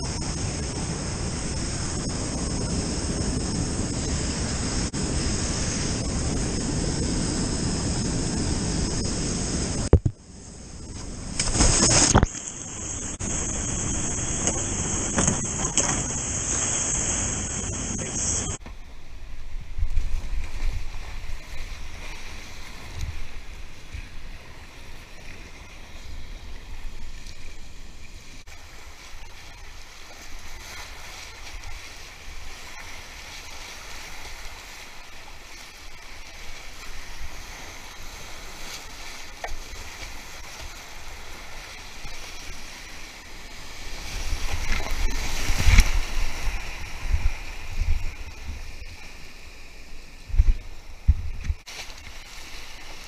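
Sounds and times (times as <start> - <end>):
paddle strokes splashing: 28.5 - 53.0.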